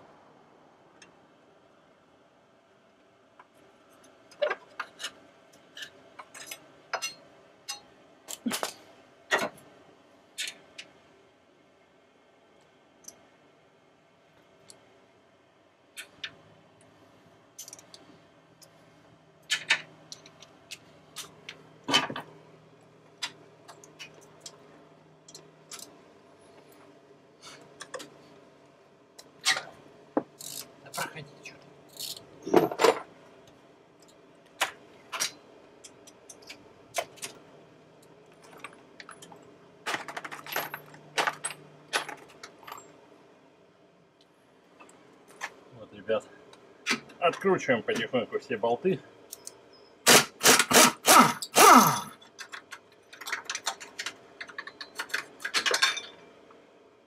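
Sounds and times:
hand tools clinking on metal: 51.2 - 56.2.

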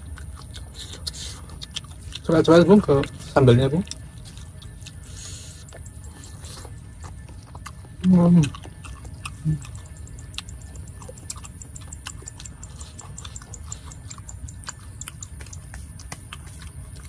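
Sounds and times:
crunchy chewing: 0.0 - 17.0
low voice hum: 4.9 - 11.2.

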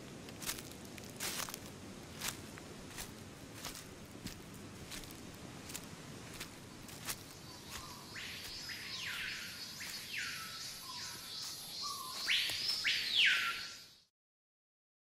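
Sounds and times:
animal calls sweeping up: 7.6 - 13.8.

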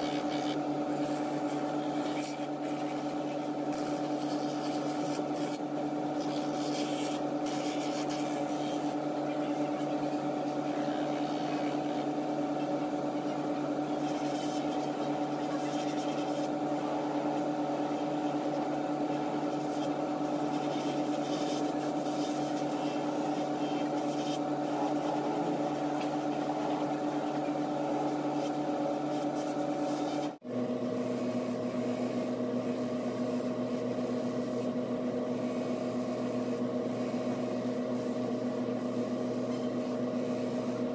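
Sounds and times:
sole grinding on sanding wheel: 0.0 - 9.0, 13.9 - 30.4
sanding machine motor humming: 0.0 - 40.9.

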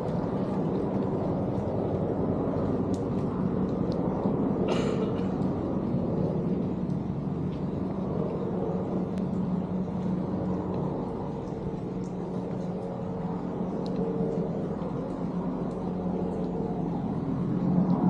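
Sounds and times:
faint light ticks: 0.0 - 4.1, 6.2 - 8.4, 9.0 - 18.0
steady engine drone: 0.0 - 18.0.

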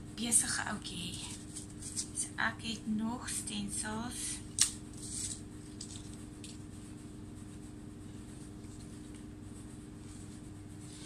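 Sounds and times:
low background hum: 0.0 - 11.0
plastic sheet rustling and ticking: 4.5 - 6.7.

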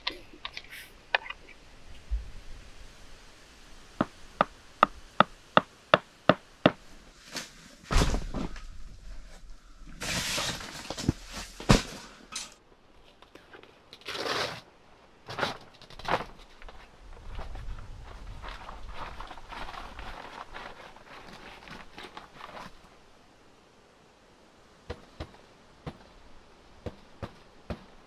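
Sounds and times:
tent fabric rustling: 6.8 - 23.1.

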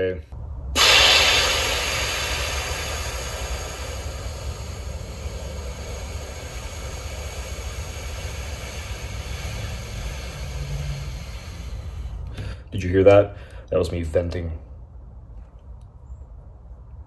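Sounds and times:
low steady rumble: 0.0 - 17.0
air brake hiss: 0.8 - 12.7.

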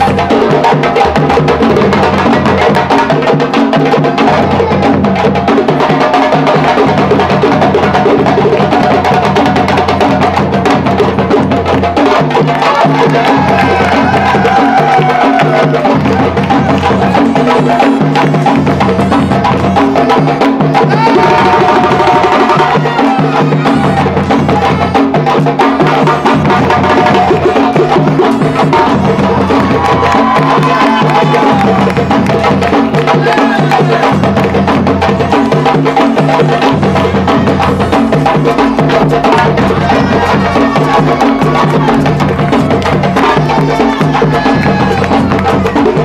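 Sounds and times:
djembes beating fast rhythm: 0.0 - 46.0
deeper drum notes: 13.0 - 46.0.

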